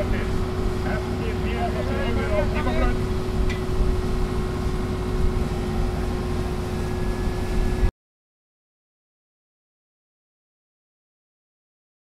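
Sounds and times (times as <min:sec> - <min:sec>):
constant hum: 0:00.0 - 0:07.9
engine running: 0:00.0 - 0:07.9
wind on microphone: 0:02.7 - 0:07.9.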